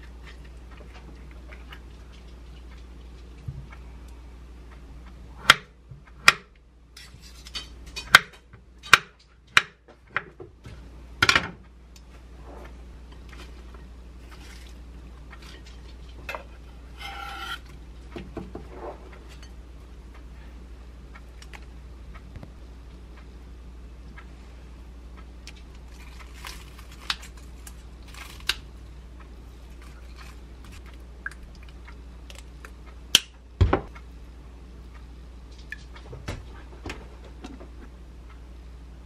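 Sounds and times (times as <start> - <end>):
ringing scrape: 16.7 - 17.7.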